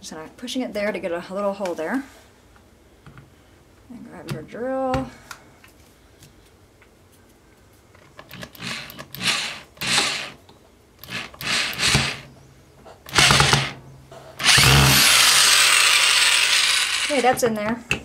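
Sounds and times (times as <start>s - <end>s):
power drill driving screw into wood: 8.3s - 10.4s, 11.0s - 12.3s, 13.1s - 13.8s, 14.4s - 17.4s.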